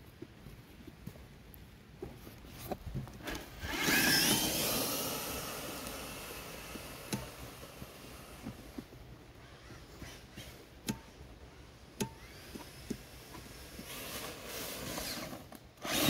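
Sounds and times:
electric motor whining: 0:03.3 - 0:08.8, 0:12.2 - 0:16.0.

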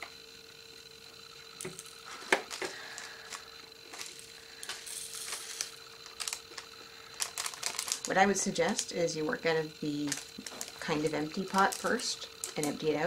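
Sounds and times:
small plastic pieces clicking and rattling: 0:01.6 - 0:09.0, 0:10.0 - 0:12.8.

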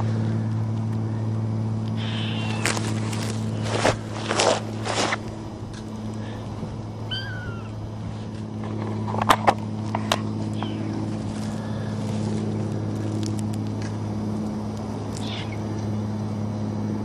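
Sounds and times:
steady low hum: 0:00.0 - 0:17.0
kitten mewing: 0:02.0 - 0:03.0, 0:07.1 - 0:07.8, 0:15.2 - 0:15.6
rustling crunches: 0:02.0 - 0:09.2, 0:09.8 - 0:14.0.

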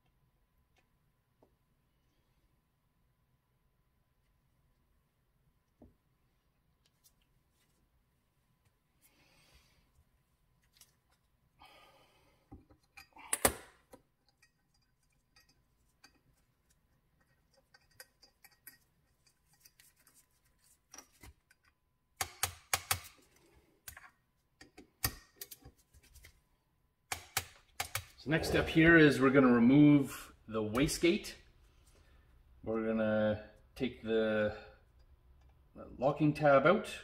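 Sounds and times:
metallic clicks of hand tools: 0:21.5 - 0:23.1.

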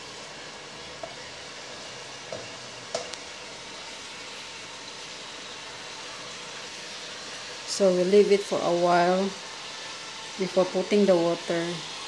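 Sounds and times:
chicken wings sizzling in wok: 0:00.0 - 0:12.0
spatula knocking on pan: 0:02.3 - 0:03.1.

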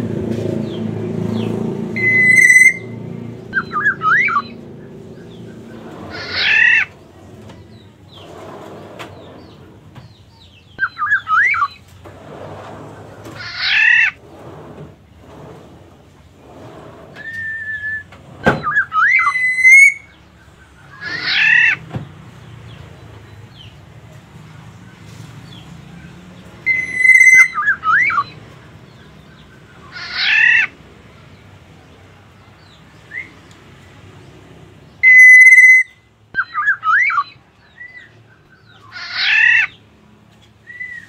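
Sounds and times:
bird harsh squawk: 0:02.0 - 0:04.6, 0:05.6 - 0:07.0, 0:13.3 - 0:14.2, 0:17.2 - 0:20.2, 0:20.8 - 0:21.8, 0:26.7 - 0:28.4, 0:29.8 - 0:30.8, 0:35.0 - 0:38.1, 0:38.7 - 0:39.8
bird whistled call: 0:02.0 - 0:04.6, 0:10.8 - 0:11.8, 0:17.2 - 0:20.2, 0:26.7 - 0:28.4, 0:35.0 - 0:38.1, 0:40.7 - 0:41.0.

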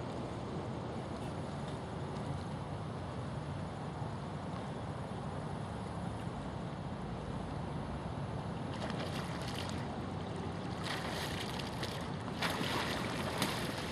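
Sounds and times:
splashing water: 0:08.7 - 0:13.9.

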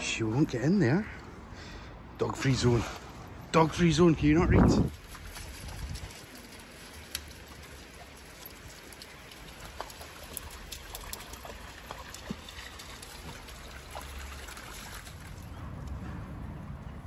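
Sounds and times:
dogs splashing through water: 0:04.8 - 0:15.8
river trickling over stones: 0:04.9 - 0:15.5.

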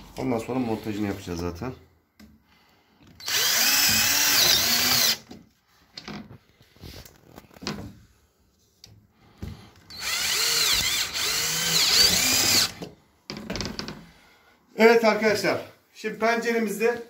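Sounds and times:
cordless drill driving screws: 0:03.2 - 0:05.3, 0:09.9 - 0:12.9.

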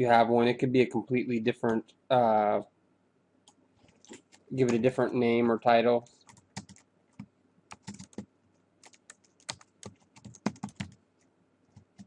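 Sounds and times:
computer keyboard typing: 0:06.3 - 0:11.0.

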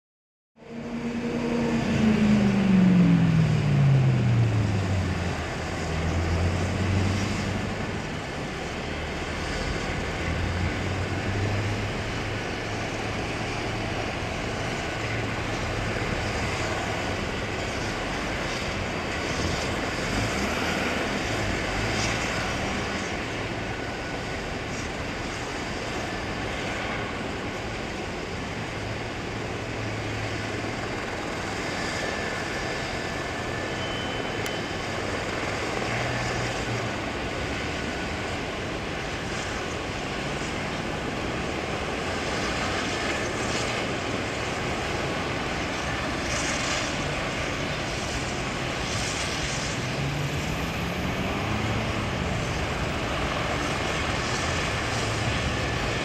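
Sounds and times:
helicopter rotor drone: 0:00.6 - 0:56.0.

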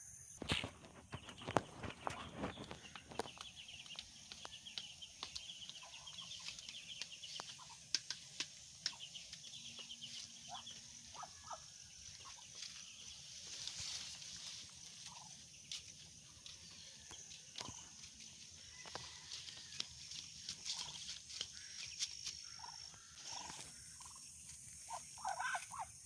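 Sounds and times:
ducklings peeping: 0:00.6 - 0:07.8, 0:08.8 - 0:13.7, 0:15.0 - 0:15.8, 0:20.6 - 0:21.2, 0:22.6 - 0:24.2, 0:24.9 - 0:25.9.

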